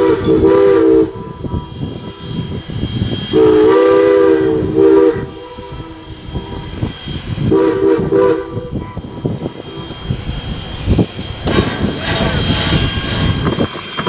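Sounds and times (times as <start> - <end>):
moving train rumble: 0.0 - 14.0
steam locomotive chime whistle: 0.0 - 14.0.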